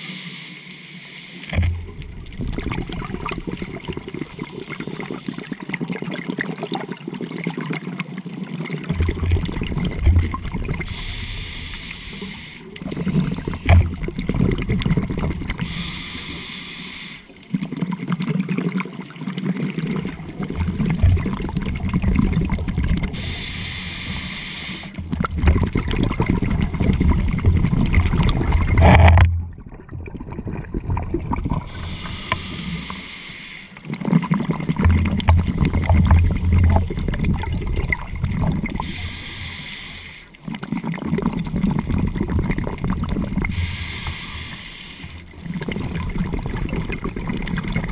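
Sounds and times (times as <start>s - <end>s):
regulator hissing inhalations: 0.0s - 1.5s, 10.8s - 12.8s, 15.6s - 17.3s, 23.1s - 25.0s, 31.7s - 33.9s, 38.8s - 40.4s, 43.4s - 45.3s
gurgling exhaled bubbles: 1.5s - 47.9s.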